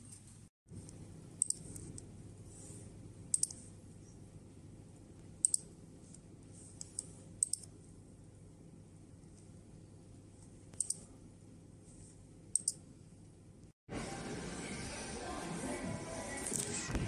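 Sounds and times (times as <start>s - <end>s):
low steady hum: 0.0s - 16.7s
computer mouse clicking: 1.4s - 2.1s, 3.3s - 3.6s, 6.8s - 7.7s, 10.7s - 11.0s, 12.5s - 12.8s.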